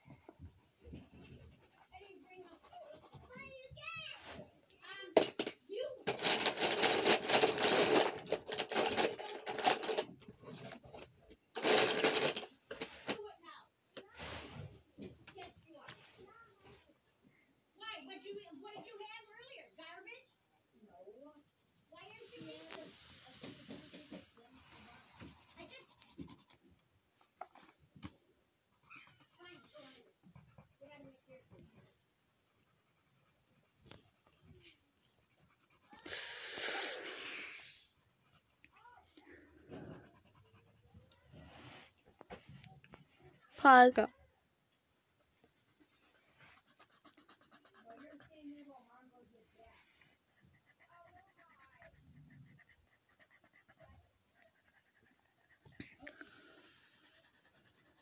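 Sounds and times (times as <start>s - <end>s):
colouring tool scratching paper: 0.0s - 4.0s, 17.8s - 26.7s, 28.7s - 37.0s, 37.6s - 41.7s, 45.0s - 58.0s.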